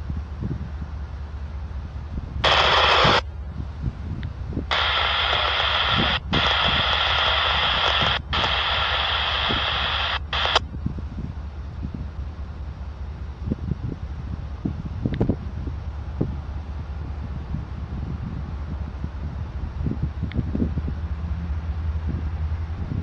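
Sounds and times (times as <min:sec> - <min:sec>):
radio static bursts: 0:02.4 - 0:03.2, 0:04.7 - 0:10.6.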